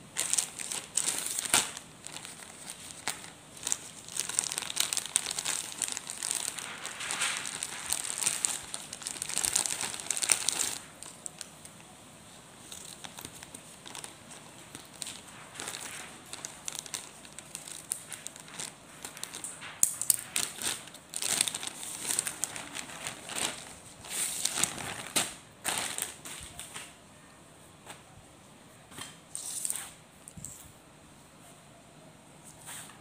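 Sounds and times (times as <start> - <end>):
plastic bag crinkling: 0.0 - 11.8, 12.6 - 26.6.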